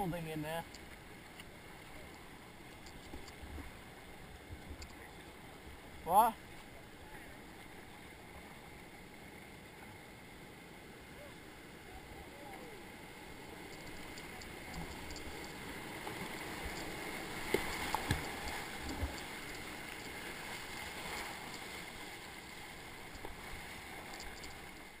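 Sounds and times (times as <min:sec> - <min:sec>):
sharp knocks and splashes: 0:13.8 - 0:21.7.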